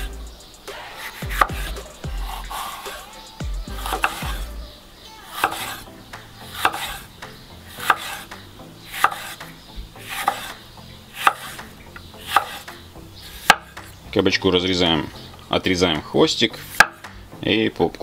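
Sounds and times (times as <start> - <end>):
knife slicing pepper: 0.7 - 4.5, 5.3 - 7.1, 7.7 - 10.6, 11.2 - 13.9.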